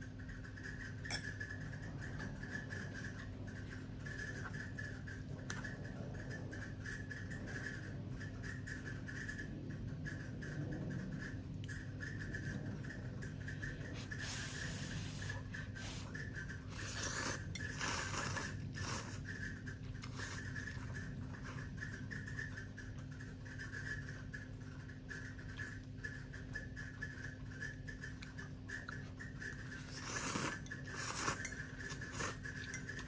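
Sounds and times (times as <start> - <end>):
steady low hum: 0.0 - 33.0
person slurping and chewing noodles: 14.0 - 21.9, 28.0 - 33.0.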